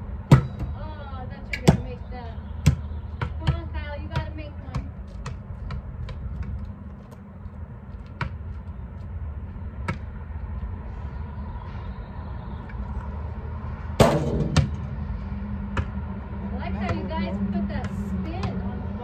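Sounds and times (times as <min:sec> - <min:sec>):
steady low rumble: 0:00.0 - 0:19.0
basketball bouncing on asphalt: 0:00.2 - 0:00.8, 0:01.5 - 0:10.7, 0:14.0 - 0:14.9, 0:15.6 - 0:16.1, 0:16.7 - 0:18.8.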